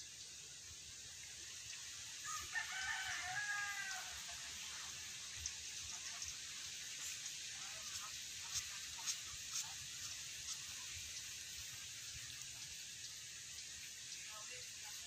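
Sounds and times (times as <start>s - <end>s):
rooster crowing: 2.2s - 4.4s.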